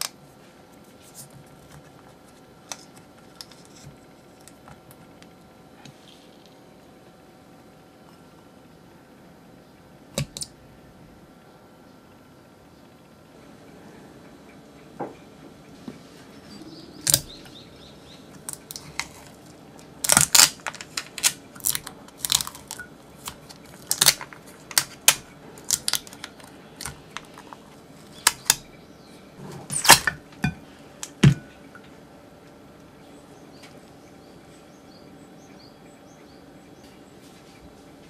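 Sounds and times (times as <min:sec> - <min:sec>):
tape peeling off bowl: 0:18.4 - 0:28.6.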